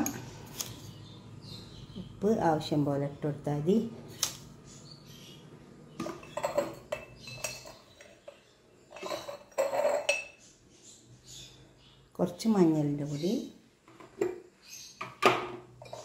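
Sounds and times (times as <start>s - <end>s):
spoon and containers clinking: 6.0s - 10.4s, 15.2s - 16.0s.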